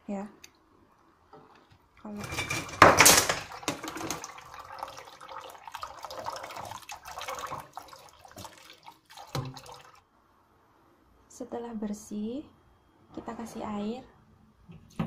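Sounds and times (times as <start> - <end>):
tap water pouring into a pan: 2.8 - 10.0.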